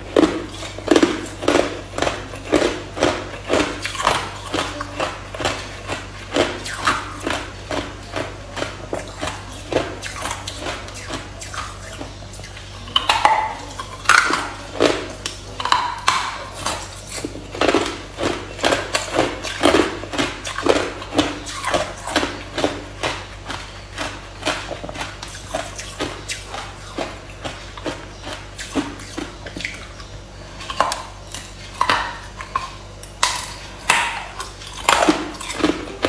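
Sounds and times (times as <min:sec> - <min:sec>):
ice being chewed: 0:00.0 - 0:36.0.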